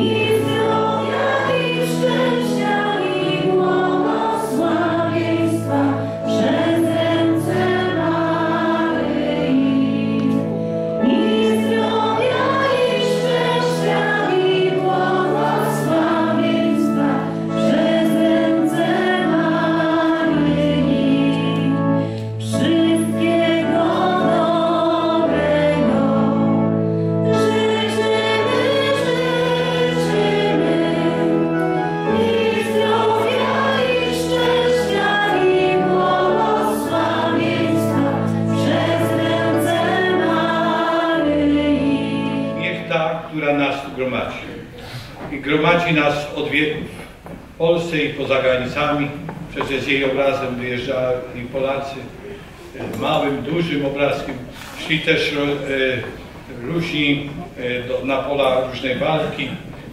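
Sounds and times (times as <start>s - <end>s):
choir singing a hymn: 0.0s - 44.9s.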